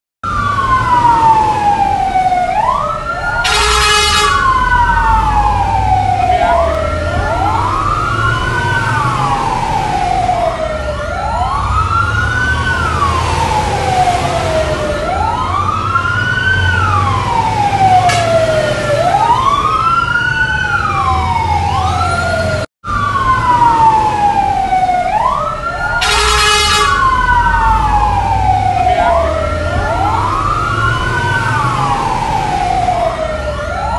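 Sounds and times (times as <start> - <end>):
fire truck sirens wailing: 0.2 - 33.9
truck engines rumbling: 0.2 - 33.9
blaring horn tone: 3.4 - 4.6, 26.0 - 27.2.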